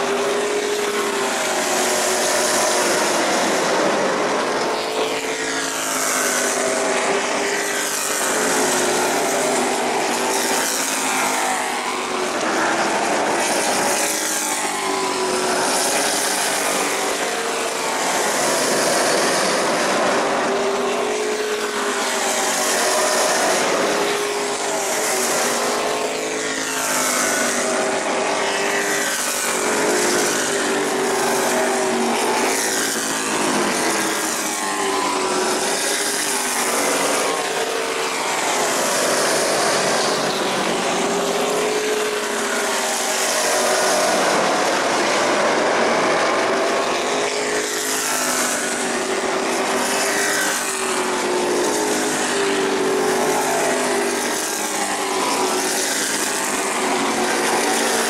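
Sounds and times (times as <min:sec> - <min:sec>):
race car engines revving: 0:00.0 - 0:58.0.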